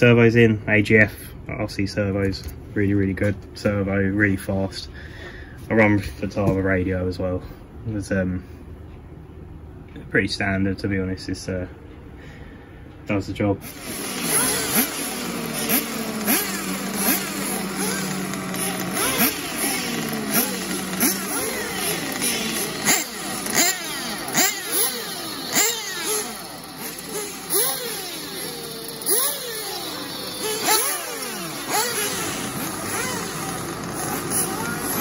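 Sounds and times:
small engine holding steady note: 13.6 - 35.0
small engines revving: 13.6 - 35.0.

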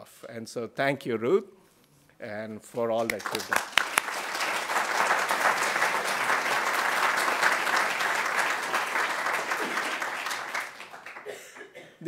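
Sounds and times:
audience applauding: 3.0 - 11.4.

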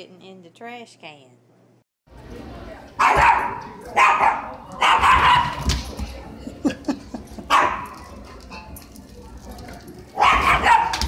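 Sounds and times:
dog barking: 3.0 - 5.6, 7.5 - 7.9, 10.2 - 11.0.

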